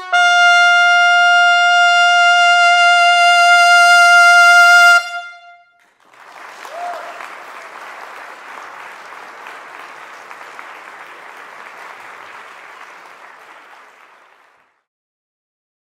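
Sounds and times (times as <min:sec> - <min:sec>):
audience applauding: 0:05.8 - 0:14.9.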